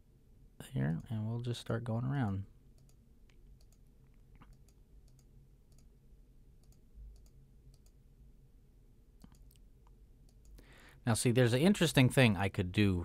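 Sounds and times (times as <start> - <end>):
low steady hum: 0.0 - 13.0
faint mouse clicks: 0.9 - 1.2, 2.2 - 5.9, 6.6 - 8.0, 9.2 - 10.6.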